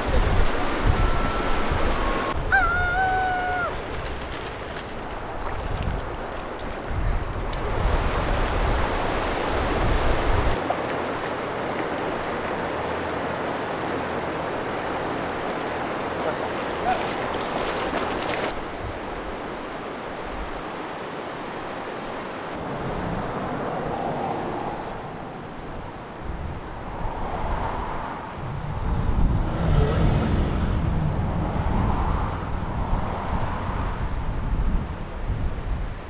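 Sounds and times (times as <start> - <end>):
wind buffeting microphone: 0.0 - 10.7, 22.6 - 36.0
rushing outdoor noise: 0.0 - 36.0.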